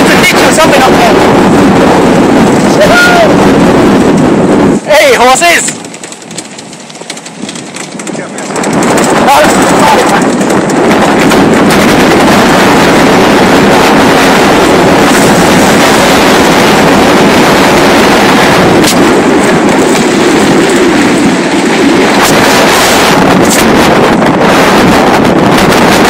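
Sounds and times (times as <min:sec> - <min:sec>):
vehicle running noise: 0:00.0 - 0:26.0
wind buffeting microphone: 0:00.0 - 0:26.0
crackles: 0:05.4 - 0:16.4.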